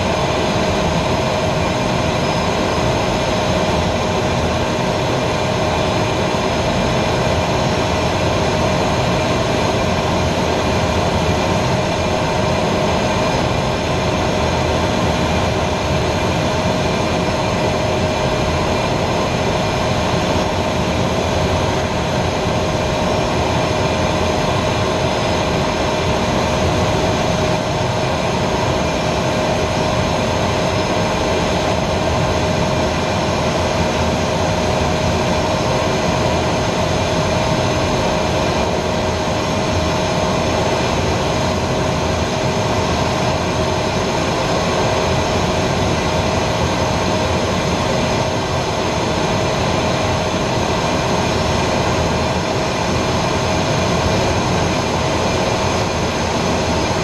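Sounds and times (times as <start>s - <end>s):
jet engine roaring with whine: 0.0s - 57.0s
rushing airflow: 0.0s - 57.0s.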